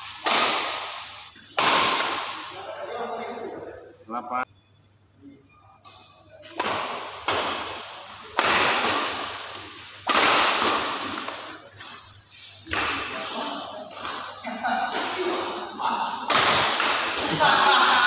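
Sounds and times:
badminton racket hitting shuttlecock: 0:00.0 - 0:02.4, 0:06.5 - 0:11.9.

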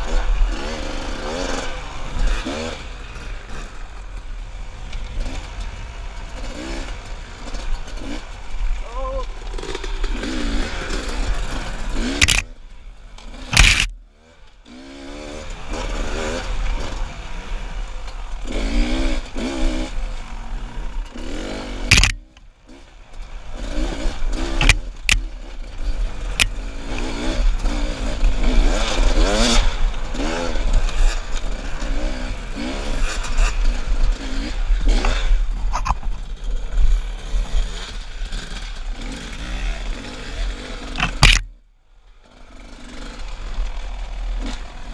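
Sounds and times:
dirt bike engine revving: 0:00.0 - 0:41.6, 0:42.2 - 0:44.9
bike knocking against rocks: 0:12.1 - 0:12.4, 0:13.5 - 0:13.9, 0:21.9 - 0:22.4, 0:41.0 - 0:41.5.

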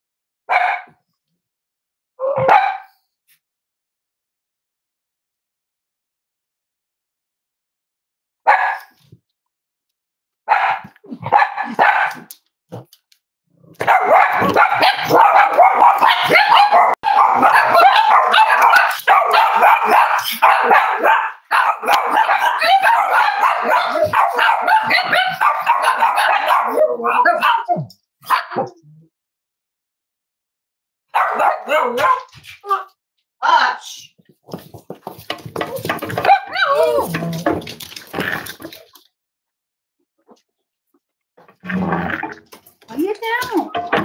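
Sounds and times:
dogs barking: 0:00.5 - 0:01.0, 0:02.3 - 0:03.0, 0:08.5 - 0:09.0, 0:10.5 - 0:12.3, 0:13.8 - 0:28.8, 0:31.1 - 0:32.4, 0:35.6 - 0:37.6.

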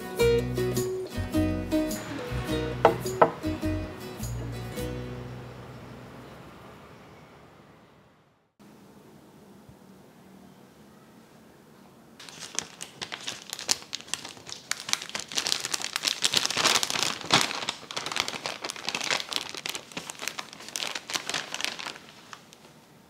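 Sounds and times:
paper bag crinkling: 0:12.2 - 0:22.8.

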